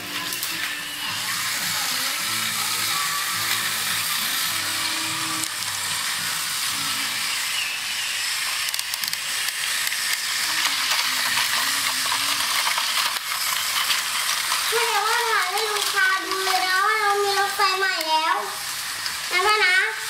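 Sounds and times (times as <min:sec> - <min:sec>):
toy train motors whirring: 0:00.0 - 0:20.0
wheels clicking on plastic track: 0:00.0 - 0:20.0.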